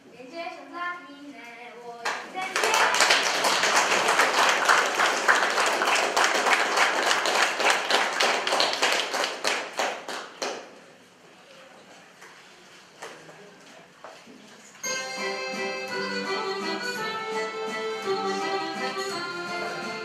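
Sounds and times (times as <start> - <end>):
audience applauding: 2.4 - 10.7.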